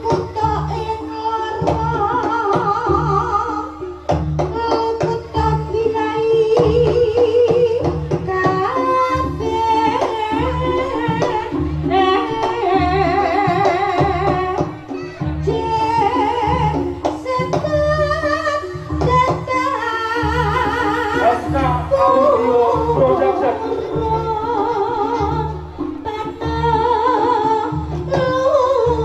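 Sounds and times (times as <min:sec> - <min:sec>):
drums beating a steady pulse: 0:00.0 - 0:29.0
singing: 0:00.0 - 0:29.0
wavering melody line: 0:08.2 - 0:29.0.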